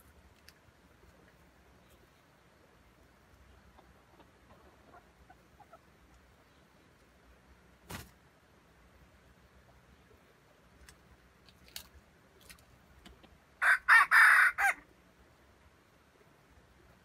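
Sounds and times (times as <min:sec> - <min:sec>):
rooster crowing: 0:13.6 - 0:14.8.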